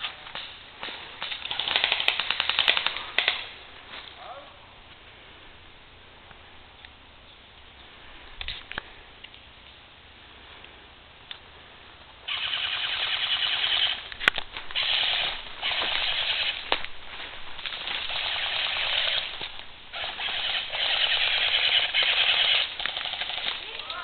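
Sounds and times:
airsoft guns firing full-auto bursts: 1.4 - 3.4, 12.3 - 14.0, 14.8 - 16.6, 18.0 - 19.3, 19.9 - 23.8.

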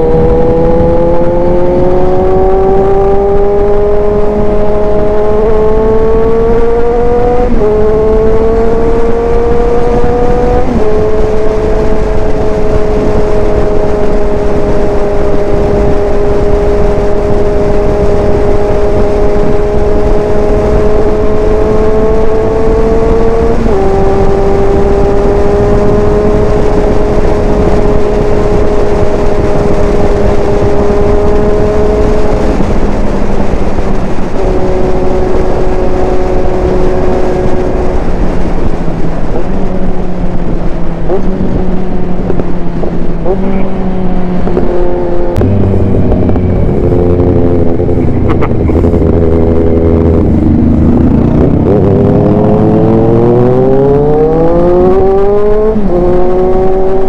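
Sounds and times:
motorcycle engine accelerating: 0.0 - 57.0
wind rush on microphone: 0.0 - 57.0.

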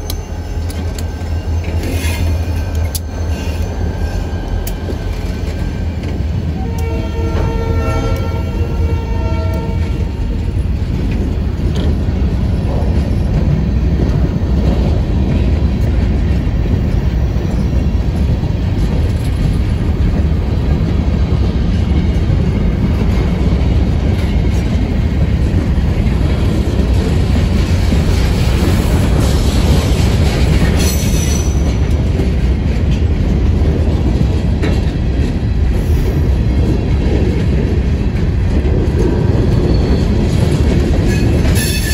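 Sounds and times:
freight train rumbling: 0.0 - 41.9
wheel clatter on rails: 9.6 - 41.9
high wheel squeal: 41.1 - 41.9.

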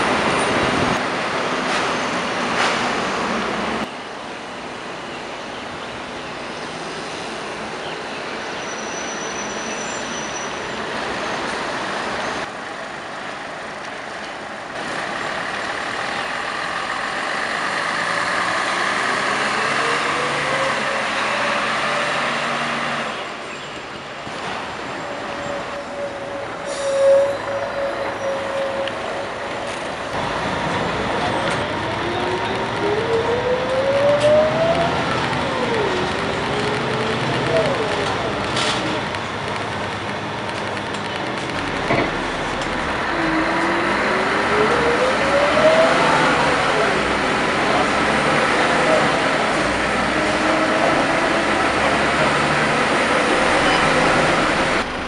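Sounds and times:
diesel bus engine accelerating: 11.8 - 23.4, 24.6 - 55.0.

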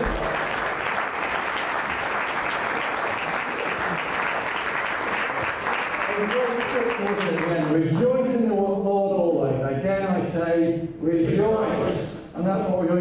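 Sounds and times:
congregation applauding: 0.0 - 7.8.

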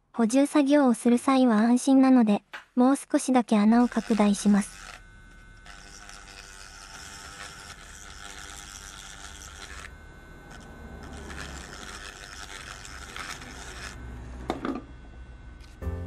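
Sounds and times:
rotary tool grinding plastic: 3.2 - 14.9.

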